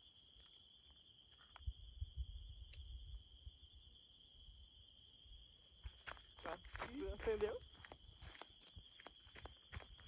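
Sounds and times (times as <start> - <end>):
crickets chirring: 0.0 - 10.0.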